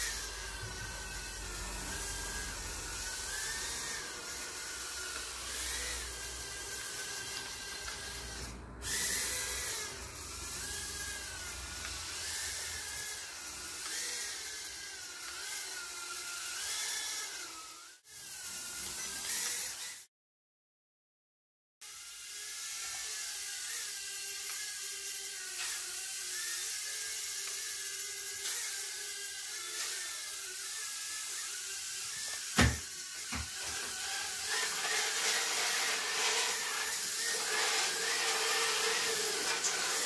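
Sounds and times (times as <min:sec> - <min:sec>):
quadcopter motors whining: 0:00.0 - 0:20.1, 0:21.8 - 0:40.0.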